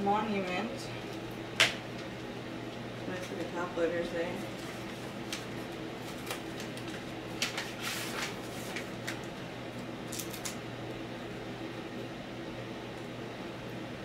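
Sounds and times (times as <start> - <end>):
steady low hum: 0.0 - 14.0
paper rustling and crinkling: 4.5 - 9.3.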